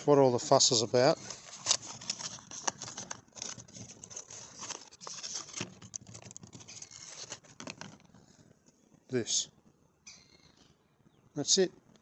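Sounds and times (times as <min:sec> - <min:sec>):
packaging rustling: 0:00.9 - 0:08.5
cardboard box being opened: 0:01.1 - 0:08.2.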